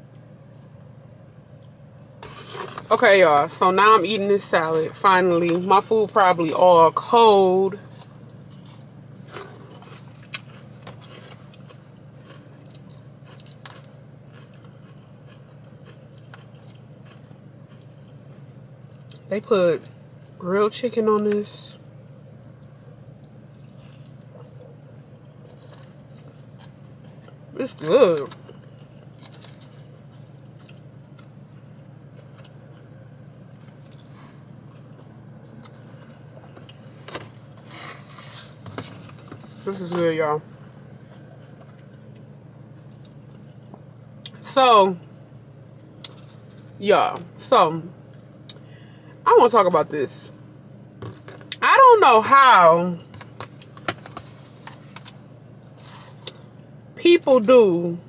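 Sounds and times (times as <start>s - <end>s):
chewing and crunching: 0.0s - 3.1s, 7.7s - 20.4s, 22.3s - 44.4s, 45.0s - 46.8s
steady low hum: 0.0s - 58.0s.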